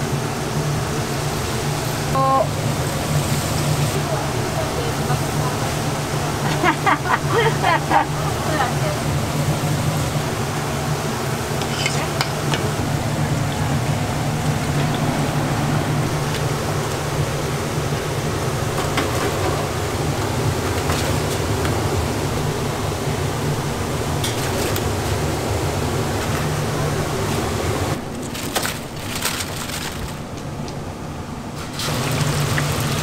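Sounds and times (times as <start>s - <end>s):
fritters sizzling in hot oil: 31.6s - 33.0s.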